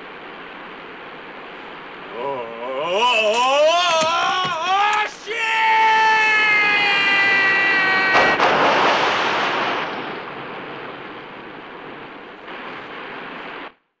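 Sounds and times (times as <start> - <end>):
man yelling: 2.2 - 8.4
big splash into river: 8.1 - 10.5.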